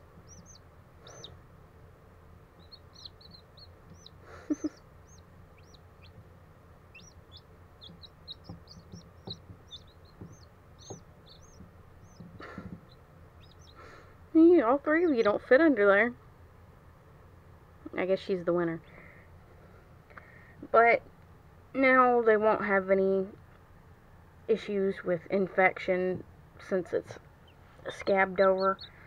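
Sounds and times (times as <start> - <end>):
chicks peeping: 0.0 - 1.4, 2.5 - 14.0, 15.0 - 15.4, 27.3 - 29.0
soft knocks: 7.8 - 13.0.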